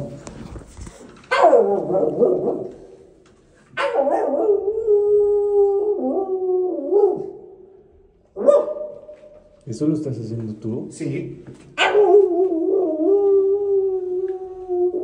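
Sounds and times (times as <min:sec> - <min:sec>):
puppy howling: 0:01.3 - 0:02.8, 0:03.8 - 0:07.4, 0:11.8 - 0:15.0.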